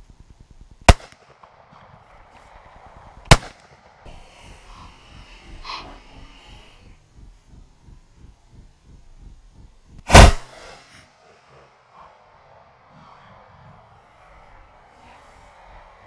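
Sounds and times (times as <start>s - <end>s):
shotgun shots: 0.9s - 2.0s, 3.2s - 4.0s, 10.1s - 10.8s.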